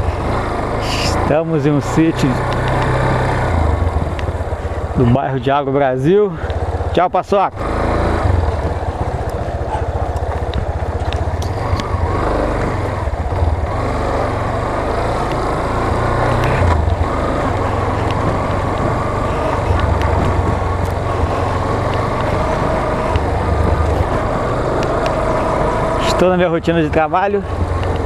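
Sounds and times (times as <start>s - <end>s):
motorcycle engine running: 0.0s - 28.0s
wind rumble on microphone: 7.9s - 13.8s, 16.0s - 26.2s.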